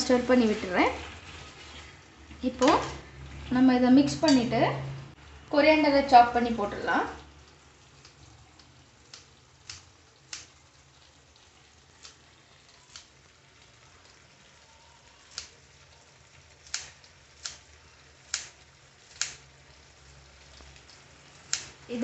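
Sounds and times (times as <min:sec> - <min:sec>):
scissors snipping leaves: 0:16.7 - 0:17.6, 0:18.3 - 0:19.4, 0:21.5 - 0:21.8.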